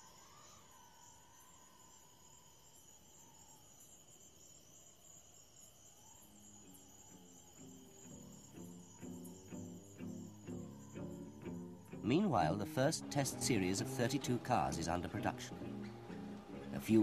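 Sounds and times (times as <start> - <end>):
soundtrack hiss: 4.6 - 17.0.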